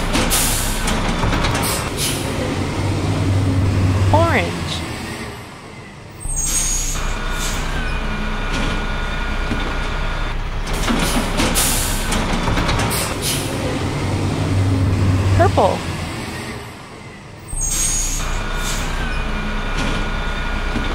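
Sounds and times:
air brakes hissing: 17.5 - 19.1.

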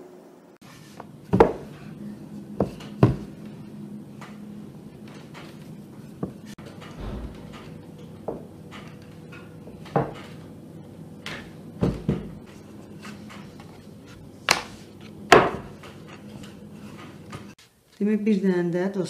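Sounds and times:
wood knocking on wood: 7.0 - 8.4.

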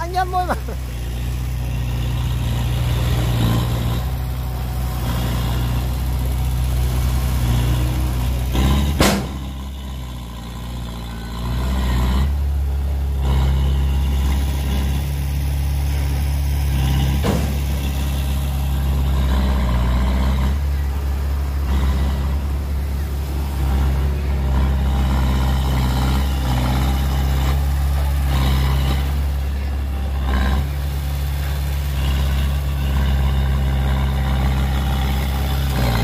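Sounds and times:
diesel engine running: 0.0 - 36.0
sharp bang: 8.9 - 9.6.

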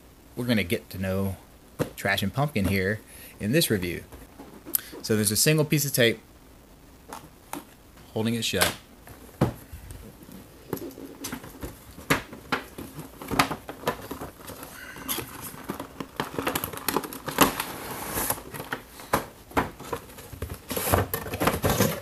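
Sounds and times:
cardboard and plastic crinkling: 9.1 - 22.0
plastic sliding out of box: 14.2 - 18.8.

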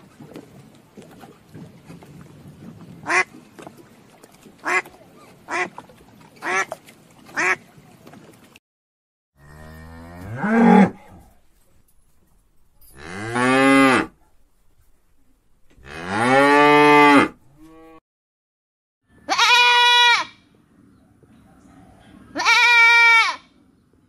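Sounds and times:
duck quacking: 7.4 - 7.6
cow mooing: 9.4 - 11.4, 12.9 - 14.2, 15.8 - 18.0.

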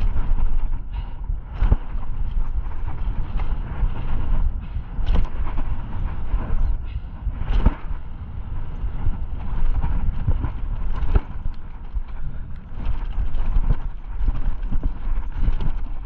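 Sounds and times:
wind on microphone: 0.0 - 16.0
bike knocks and rattles: 1.6 - 8.0, 9.7 - 16.0.

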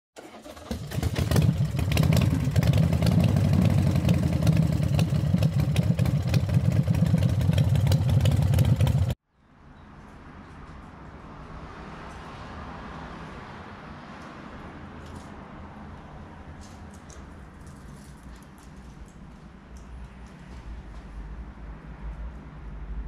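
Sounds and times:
motorcycle engine running: 0.5 - 9.2.

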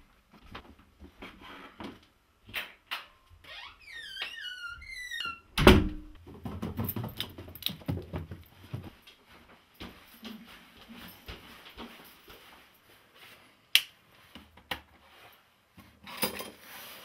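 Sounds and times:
soft knocks and shuffling: 0.0 - 2.2, 6.2 - 17.0
wooden door creaking: 3.4 - 6.2.

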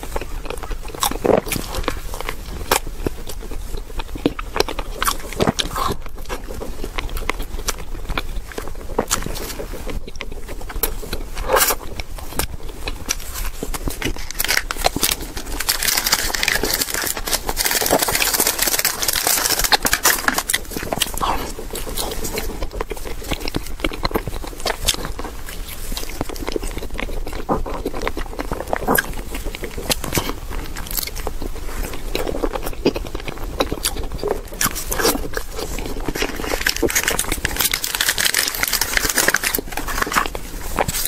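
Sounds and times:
sticky chewing: 0.0 - 41.0
plastic tray crinkling: 12.4 - 22.5, 34.6 - 41.0.

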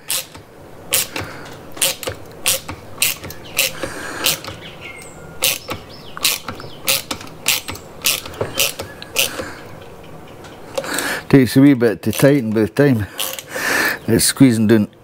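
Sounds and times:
hand tool clicking: 0.0 - 9.7, 13.2 - 13.5.

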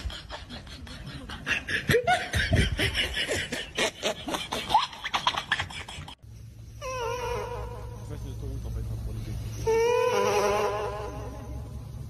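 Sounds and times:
person snickering: 0.0 - 6.2.

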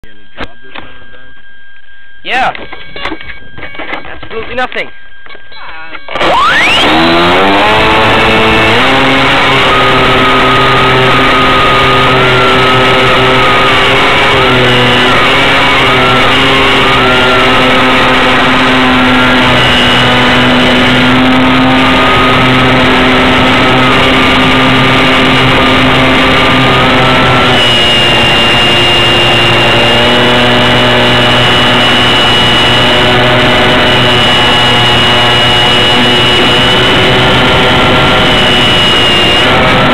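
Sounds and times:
model plane motor whining: 6.1 - 39.9.

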